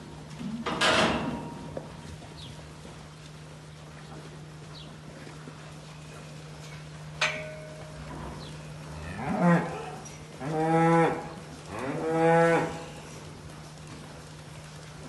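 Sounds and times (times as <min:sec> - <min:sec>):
cows mooing: 0:07.9 - 0:13.1.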